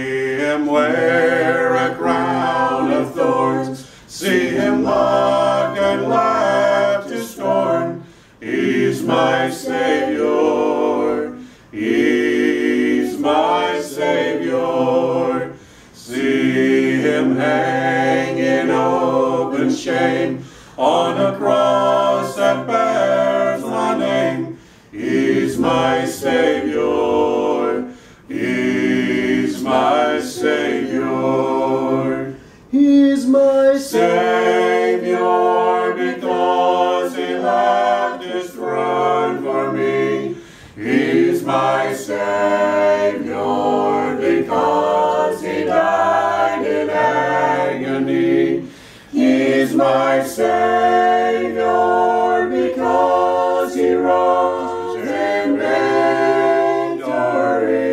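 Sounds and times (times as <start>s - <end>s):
group singing a hymn a cappella: 0.0s - 57.9s.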